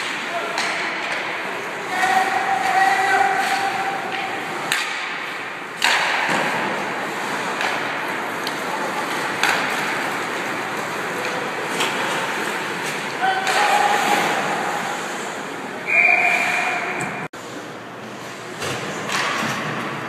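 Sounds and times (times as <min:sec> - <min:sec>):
hockey sticks and puck cracks: 0:00.0 - 0:15.2, 0:18.2 - 0:20.0
steady rink hiss: 0:00.1 - 0:16.7
skates scraping on ice: 0:01.6 - 0:15.3.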